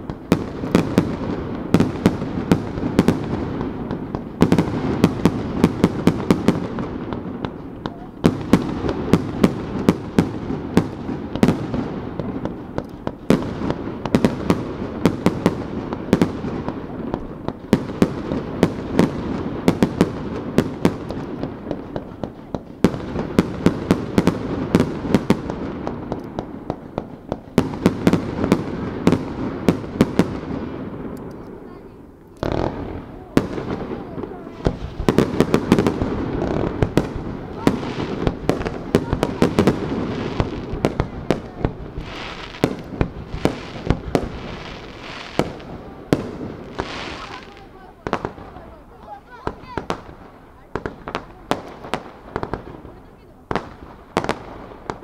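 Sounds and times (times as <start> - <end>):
firework shells bursting: 32.2 - 52.7.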